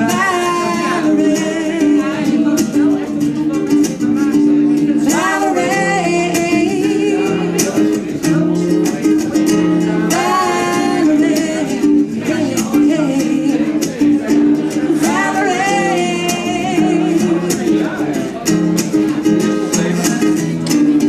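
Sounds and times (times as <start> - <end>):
woman singing: 0.0 - 18.2
strummed guitar: 0.0 - 21.0.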